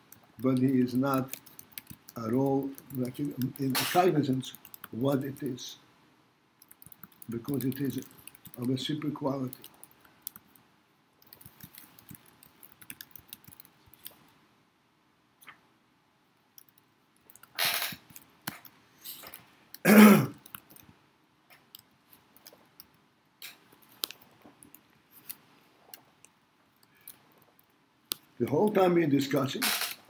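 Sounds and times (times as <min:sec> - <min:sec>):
man clearing his throat: 0:19.8 - 0:20.4.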